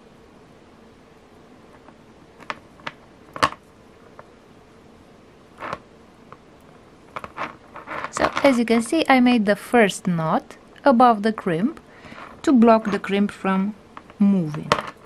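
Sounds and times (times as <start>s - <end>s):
thread rustle: 7.0s - 9.2s, 12.0s - 13.2s.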